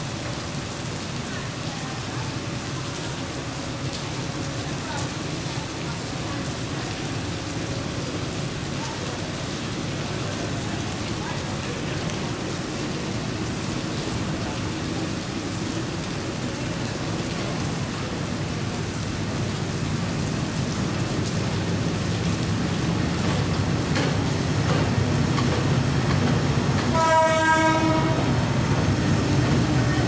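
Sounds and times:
diesel railcar engine rumbling: 0.0 - 30.0
rain falling: 0.0 - 30.0
train horn blast: 26.9 - 28.6.

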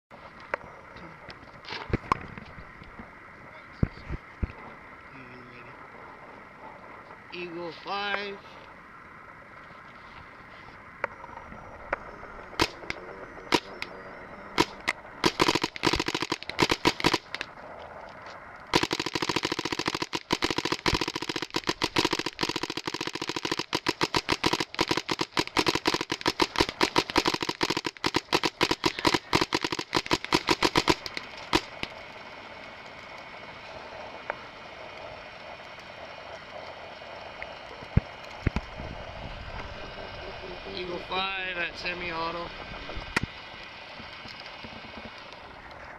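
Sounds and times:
paintball marker firing: 12.6 - 13.8, 14.6 - 17.5, 18.7 - 32.0.

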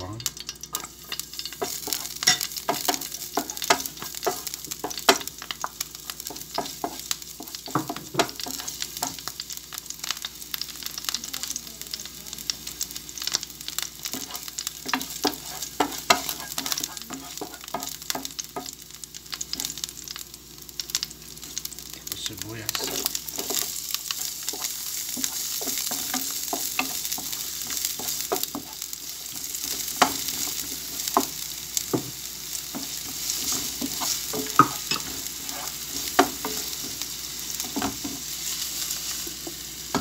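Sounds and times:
garlic sizzling in hot oil: 0.0 - 40.0
wooden spatula stirring: 22.7 - 36.9.

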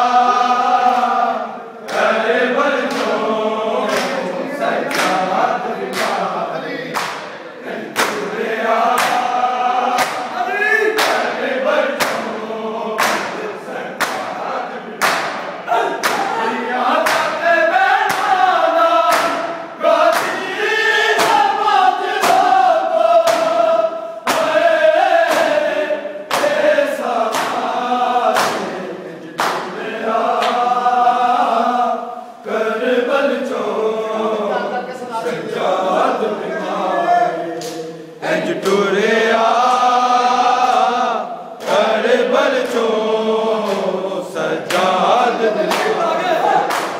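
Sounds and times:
men singing in unison: 0.0 - 46.9
open-hand chest slaps: 6.9 - 7.3, 10.0 - 10.3, 15.0 - 16.3, 23.2 - 23.6, 24.3 - 24.6, 26.3 - 26.6, 27.3 - 27.7, 29.4 - 29.8.

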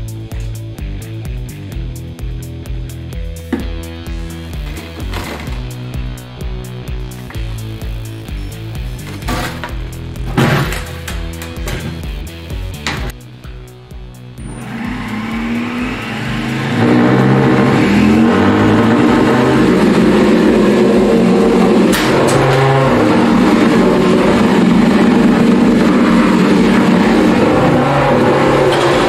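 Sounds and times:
drive gearmotors whirring: 14.4 - 29.0.

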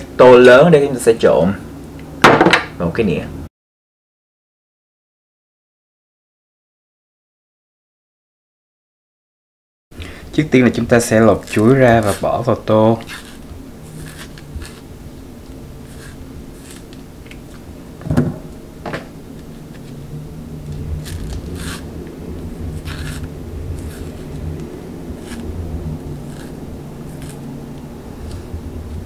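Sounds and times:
steady low hum: 0.0 - 3.5, 9.9 - 29.0
banana peel tearing: 10.6 - 17.7, 20.6 - 29.0.

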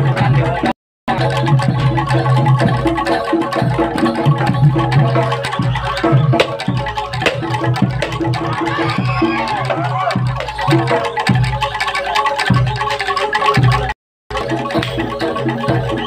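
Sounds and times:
steady drum beat: 0.0 - 16.0
metallophone and gong-chime notes: 1.1 - 16.0
sharp strikes: 6.4 - 8.3.

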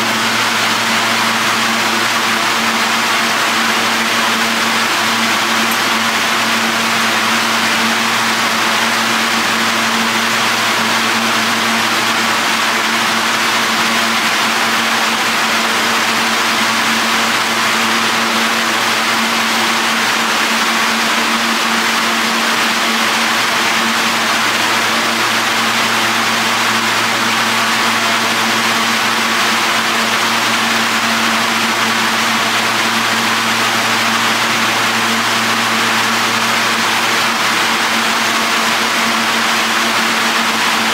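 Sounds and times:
subway train humming: 0.0 - 13.8.

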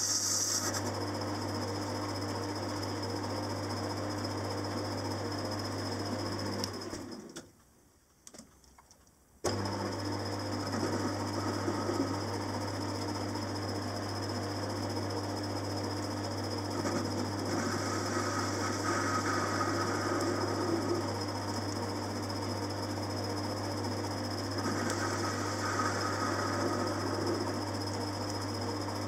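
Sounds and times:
lathe humming: 9.5 - 15.0, 15.6 - 29.0.

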